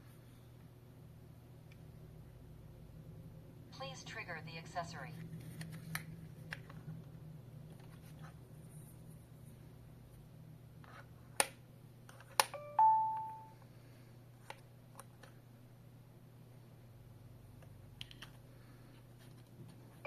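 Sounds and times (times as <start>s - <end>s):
alarm panel beep-chime: 12.6s - 13.6s.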